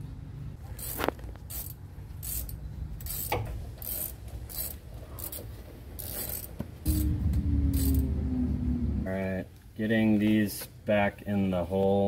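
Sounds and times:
ratchet wrench clicking: 0.8 - 8.1.

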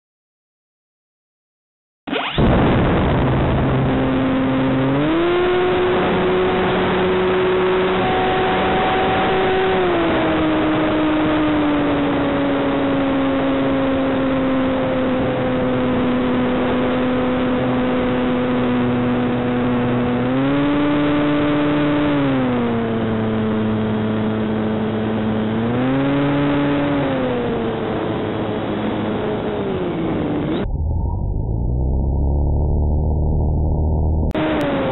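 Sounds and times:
electric motor and propeller whine: 2.2 - 34.9
rush of air: 30.5 - 34.3.

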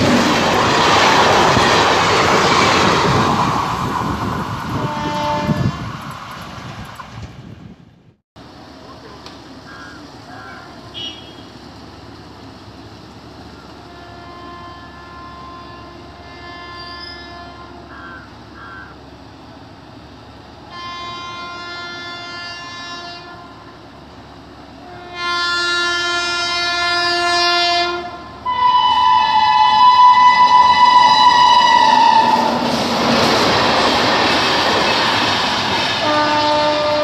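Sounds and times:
train running past on rails: 0.0 - 37.0
locomotive horn blasts: 4.7 - 6.0, 10.3 - 11.6, 13.7 - 17.9, 20.6 - 23.8, 24.8 - 32.6, 36.0 - 37.0.

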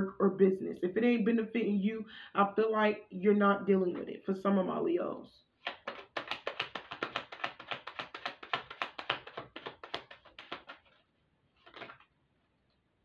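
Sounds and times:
cards shuffling: 5.6 - 12.2.

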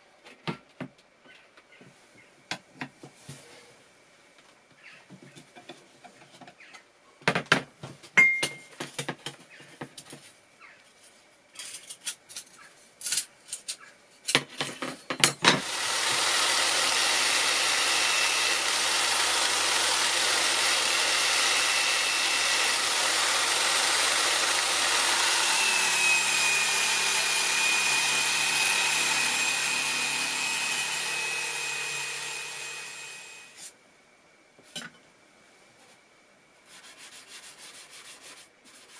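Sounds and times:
bench grinder whining: 15.6 - 33.6
wire wheel brushing metal: 15.6 - 33.6.

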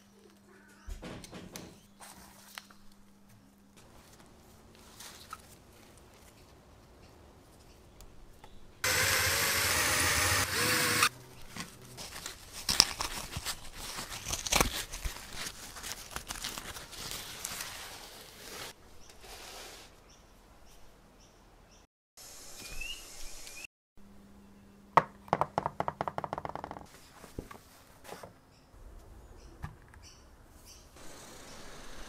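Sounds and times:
fabric and leather tearing: 12.0 - 18.8.

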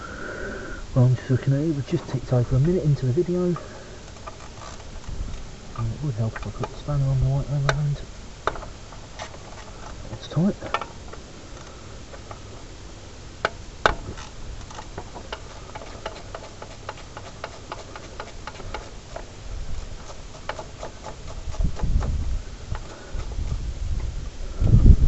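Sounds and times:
ratchet spanner clicking: 13.4 - 22.1.

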